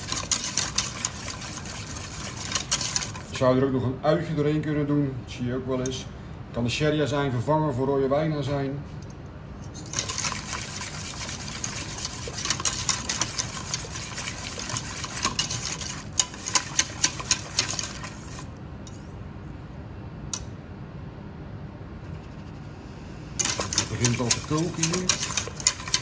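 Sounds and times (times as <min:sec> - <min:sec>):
whisk scraping metal pot: 0:00.0 - 0:03.4, 0:09.8 - 0:18.5, 0:23.4 - 0:26.0.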